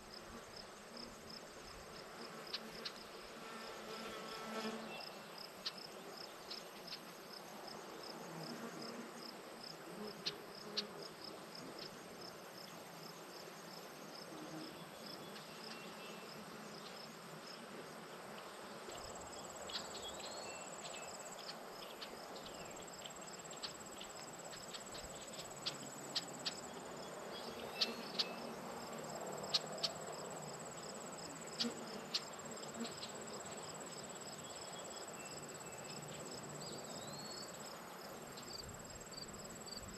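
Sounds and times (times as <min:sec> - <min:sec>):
steady higher insect trill: 0:19.0 - 0:39.9
pulsing high insect chirp: 0:19.2 - 0:39.9.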